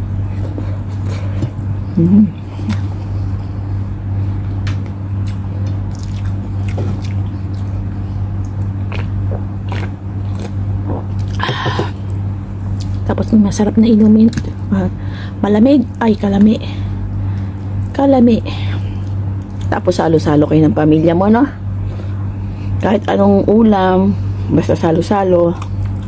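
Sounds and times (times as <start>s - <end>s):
steady low hum: 0.0s - 26.0s
chewing with wet clicks: 4.6s - 11.4s, 12.0s - 13.0s, 19.0s - 19.7s, 25.6s - 26.0s.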